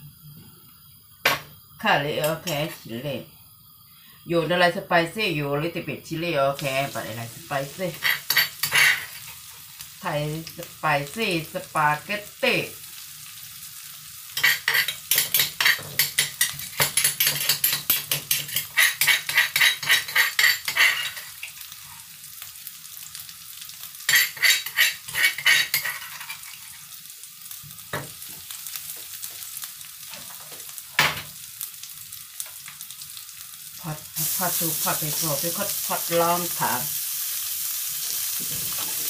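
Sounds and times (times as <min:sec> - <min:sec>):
food sizzling in oil: 0:00.0 - 0:39.0
metal spoon scraping a wok: 0:07.9 - 0:09.5, 0:14.4 - 0:22.0, 0:24.1 - 0:26.9.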